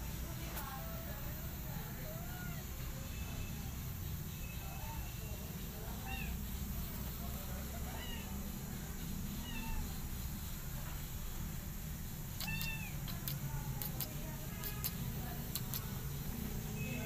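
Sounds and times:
cat meowing: 7.9s - 8.3s, 9.4s - 9.9s, 12.4s - 13.0s.

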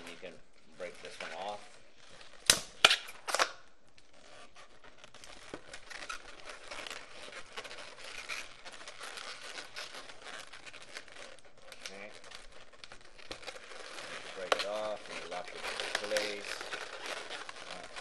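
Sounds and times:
balloons rubbing and squeaking: 0.0s - 18.0s
balloon popping: 2.3s - 14.9s.

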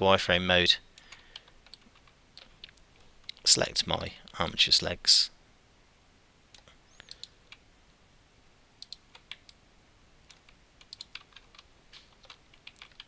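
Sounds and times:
keyboard and mouse clicks: 1.0s - 3.5s, 6.6s - 7.6s, 8.8s - 9.6s, 10.3s - 13.0s.

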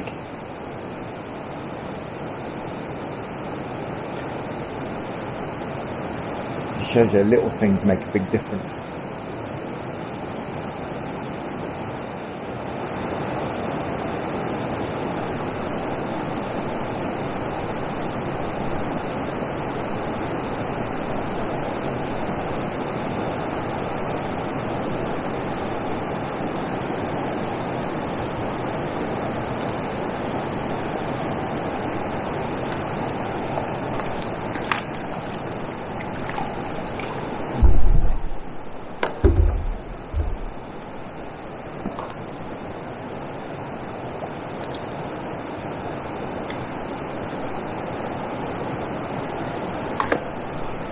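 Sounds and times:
wind: 0.0s - 50.9s
water rushing over weir: 15.2s - 50.9s
loud low thumps: 37.6s - 40.7s.

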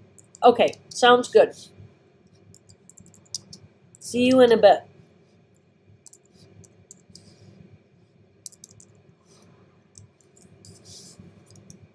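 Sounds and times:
keyboard typing clicks: 0.2s - 1.0s, 2.5s - 3.6s, 6.0s - 7.3s, 8.4s - 8.9s, 11.4s - 11.9s.

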